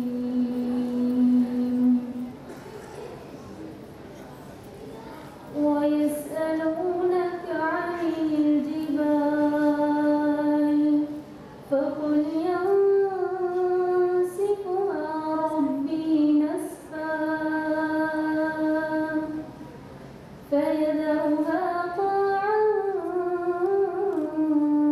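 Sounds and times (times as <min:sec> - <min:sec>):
woman reciting melodically: 0:00.0 - 0:02.6, 0:05.4 - 0:19.6, 0:20.4 - 0:24.9.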